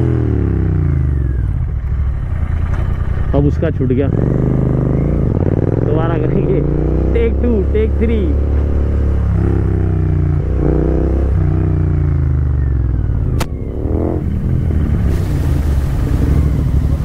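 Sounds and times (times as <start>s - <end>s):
motorcycle engine revving: 0.0s - 17.0s
sharp click: 13.3s - 13.6s.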